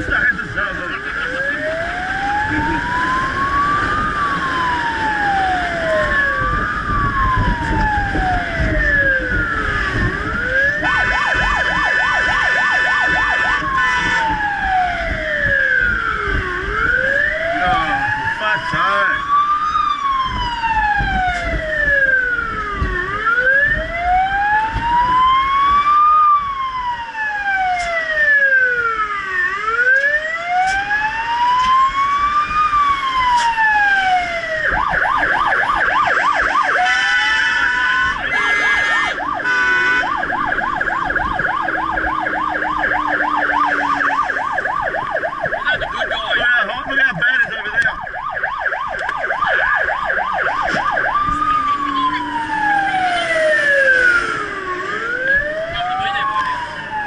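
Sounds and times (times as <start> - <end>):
engine and road noise: 0.0 - 57.0
fire truck siren: 0.0 - 57.0.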